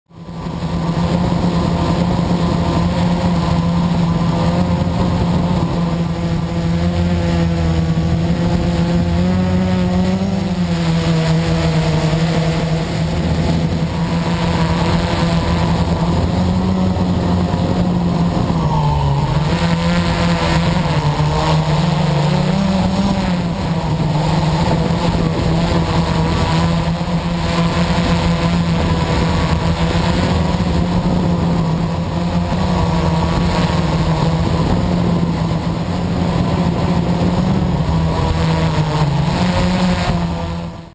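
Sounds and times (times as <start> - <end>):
model aircraft motor buzzing: 0.1 - 40.9.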